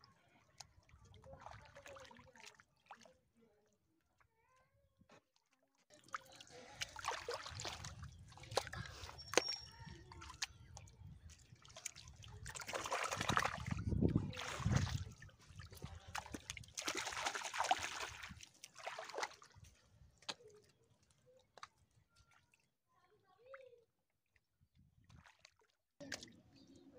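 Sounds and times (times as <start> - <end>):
small splashes: 0.1 - 3.4, 5.9 - 22.8, 25.0 - 26.8
hands squelching through mud: 6.0 - 20.7.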